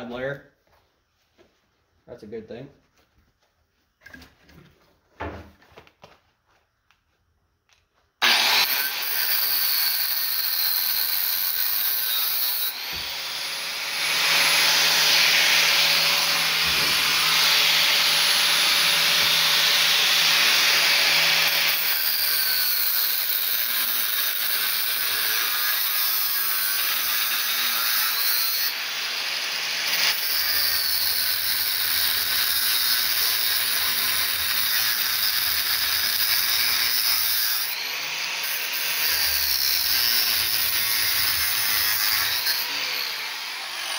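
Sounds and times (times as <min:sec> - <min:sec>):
angle grinder cutting metal: 0:08.2 - 0:43.9.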